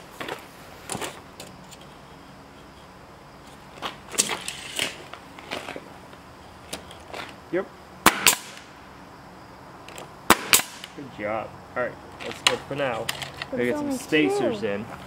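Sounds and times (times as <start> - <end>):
nail gun firing into wood: 8.0 - 8.7, 10.3 - 11.0.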